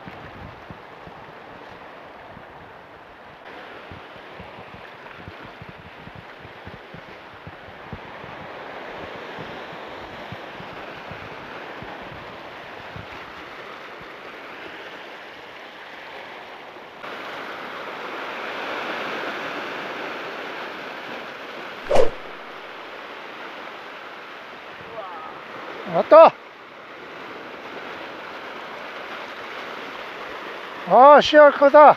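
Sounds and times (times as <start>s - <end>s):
ocean surf breaking on rocks: 17.0s - 31.9s
sharp thump: 21.9s - 22.5s.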